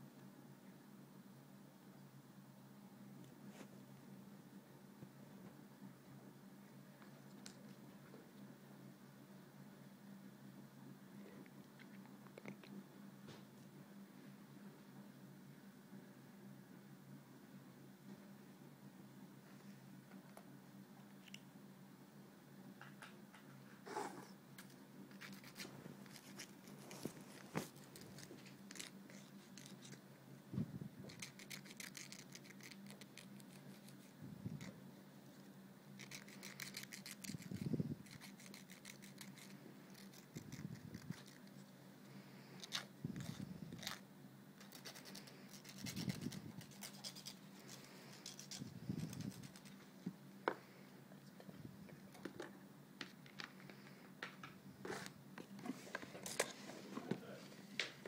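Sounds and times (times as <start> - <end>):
nail file rasping on nails: 31.1 - 34.0, 36.0 - 41.6, 44.6 - 49.8.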